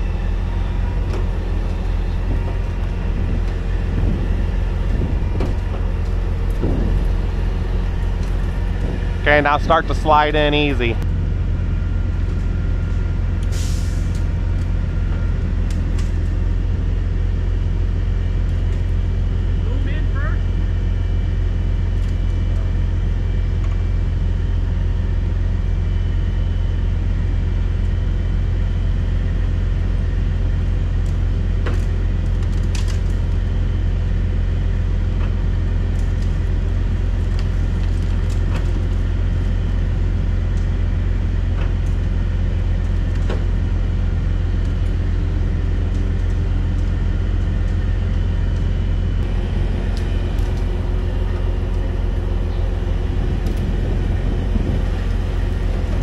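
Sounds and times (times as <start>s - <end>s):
hydraulics working: 0.0s - 11.0s, 31.3s - 56.0s
diesel engine running: 0.0s - 56.0s.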